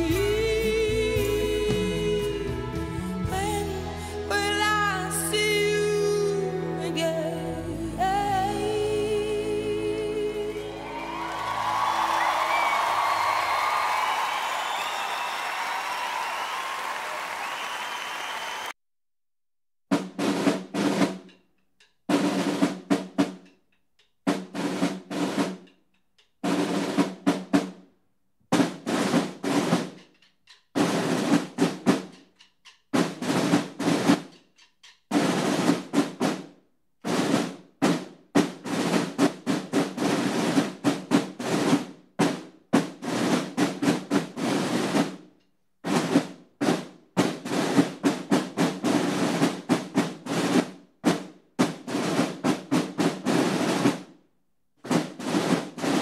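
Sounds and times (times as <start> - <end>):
marching snare drums: 19.9 - 21.4, 22.1 - 23.5, 24.3 - 25.7, 26.4 - 27.9, 28.5 - 30.2, 30.8 - 34.4, 35.1 - 54.1, 54.8 - 56.0.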